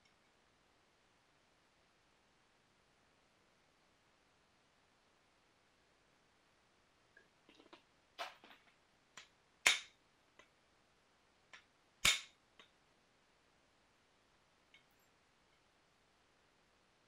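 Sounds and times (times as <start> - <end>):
knapping tool striking stone: 9.6 - 10.0, 12.0 - 12.3.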